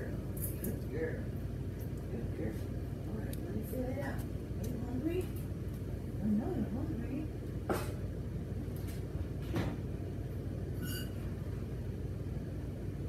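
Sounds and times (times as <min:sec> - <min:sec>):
low room hum: 0:00.0 - 0:13.0
short high-pitched squeak: 0:10.8 - 0:11.3.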